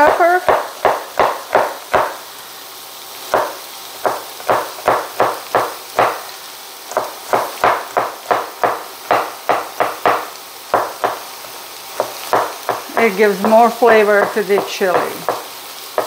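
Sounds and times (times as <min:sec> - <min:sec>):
knife chopping on cutting board: 0:00.0 - 0:02.2, 0:03.3 - 0:06.2, 0:07.0 - 0:11.2, 0:12.0 - 0:13.6, 0:14.2 - 0:16.0.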